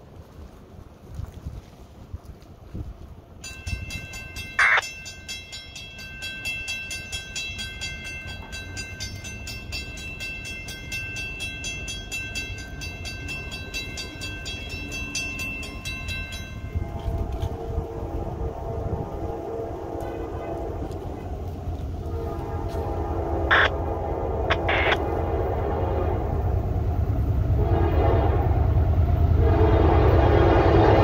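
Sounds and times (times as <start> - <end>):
crossing warning bell ringing: 3.4 - 21.5, 23.2 - 23.8, 24.5 - 25.1
locomotive horn: 16.6 - 26.8, 27.5 - 31.0
loud high-pitched sound: 23.5 - 23.7, 24.5 - 25.0.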